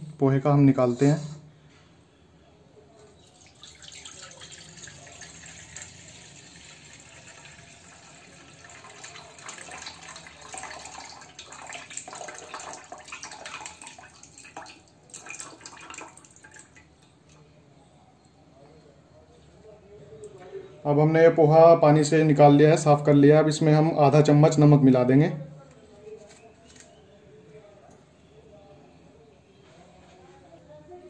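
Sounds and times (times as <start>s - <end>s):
water trickling and splashing into pan: 3.2s - 16.9s.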